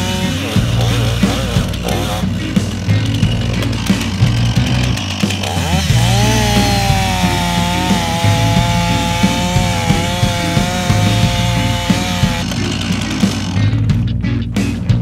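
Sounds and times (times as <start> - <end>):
chainsaw cutting wood: 0.0 - 13.8.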